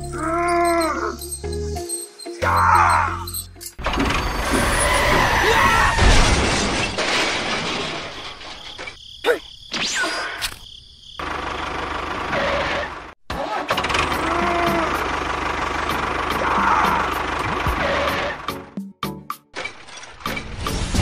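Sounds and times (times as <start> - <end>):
vehicle and crash sound effects: 3.8 - 9.0, 17.2 - 18.6, 19.5 - 21.0
engine hum: 11.2 - 18.7.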